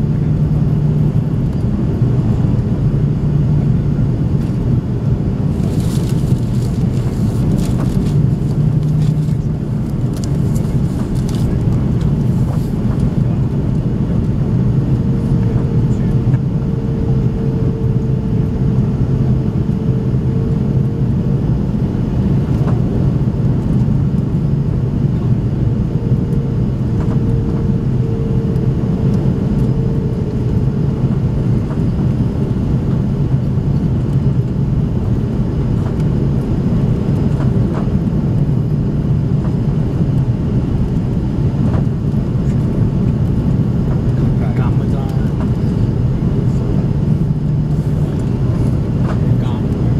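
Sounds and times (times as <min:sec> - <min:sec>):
airplane cabin engine rumble: 0:00.0 - 0:49.9
thin steady hum: 0:24.2 - 0:34.6.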